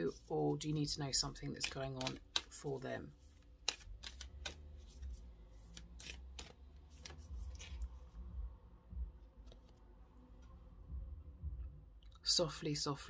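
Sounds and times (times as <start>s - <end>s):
cards being shuffled: 0.0s - 8.3s, 9.3s - 10.6s
low rumble: 10.1s - 12.1s.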